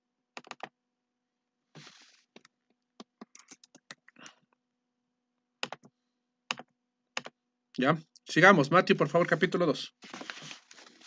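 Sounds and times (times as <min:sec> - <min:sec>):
rustling: 0:10.0 - 0:11.0.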